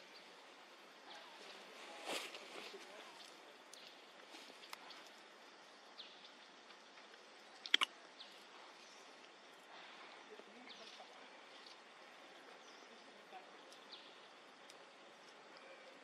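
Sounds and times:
steady background hiss: 0.0 - 16.0
small birds chirping: 2.6 - 16.0
sharp double click: 7.7 - 7.9.

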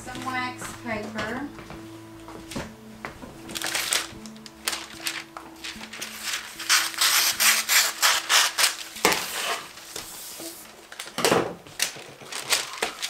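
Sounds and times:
wax paper rustling and crinkling: 2.6 - 13.0.

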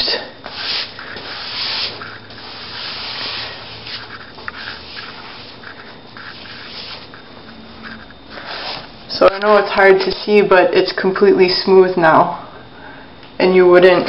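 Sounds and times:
wet sponge scrubbing drywall: 0.0 - 7.3, 8.3 - 8.9.

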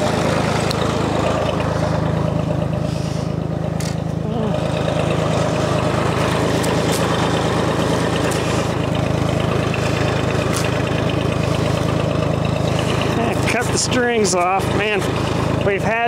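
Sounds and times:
diesel tractor engine running: 0.0 - 16.0.

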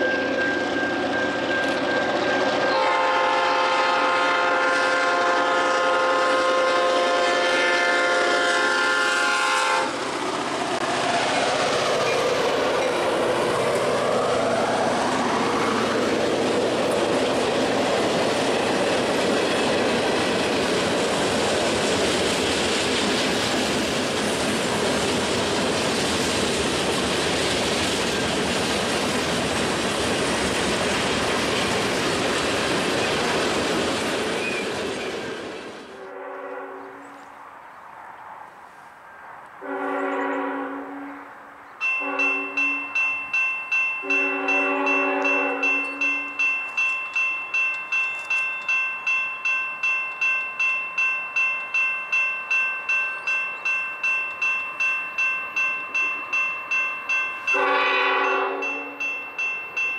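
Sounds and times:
locomotive air horn: 2.6 - 9.9, 35.9 - 37.2, 39.6 - 41.4, 42.0 - 42.9, 44.0 - 46.3, 57.5 - 59.0
freight cars rolling past: 9.3 - 36.0.

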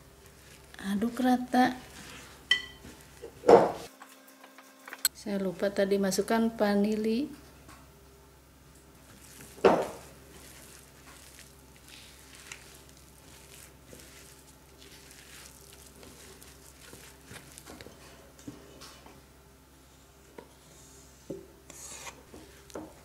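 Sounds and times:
spatula scraping mixing bowl: 9.1 - 18.3, 21.7 - 22.7.

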